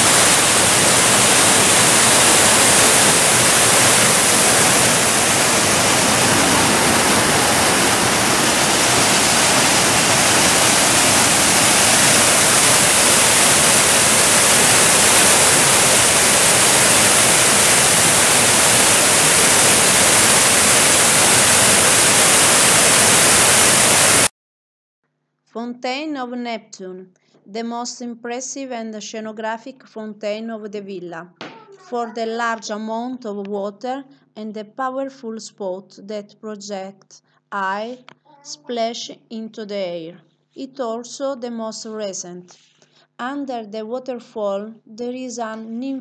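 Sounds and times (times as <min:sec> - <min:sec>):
fountain water splashing: 0:00.0 - 0:24.3.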